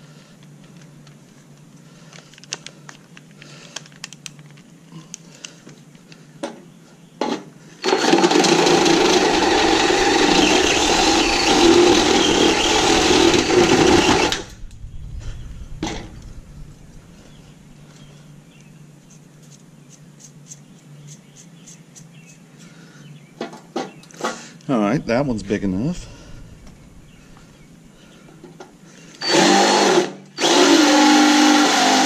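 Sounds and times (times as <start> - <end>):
cordless drill boring metal: 7.8 - 14.5, 29.2 - 32.0.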